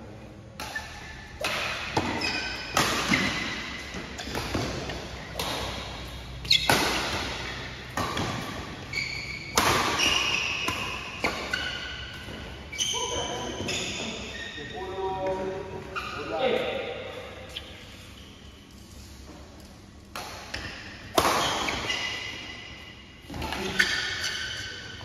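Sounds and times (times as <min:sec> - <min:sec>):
racket striking shuttlecock: 0:00.6 - 0:12.4, 0:20.1 - 0:22.4
shoe squeaks on court floor: 0:02.1 - 0:04.5, 0:06.3 - 0:07.8, 0:08.8 - 0:15.1, 0:15.8 - 0:16.6, 0:17.4 - 0:18.7, 0:21.3 - 0:22.7, 0:23.5 - 0:25.0.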